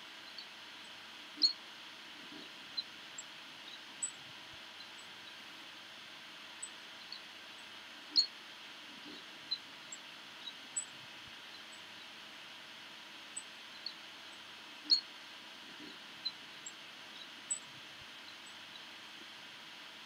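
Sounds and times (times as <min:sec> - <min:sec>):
faint steady hiss: 0:00.0 - 0:20.0
small birds chirping: 0:06.6 - 0:08.3, 0:13.4 - 0:15.1, 0:15.7 - 0:18.9.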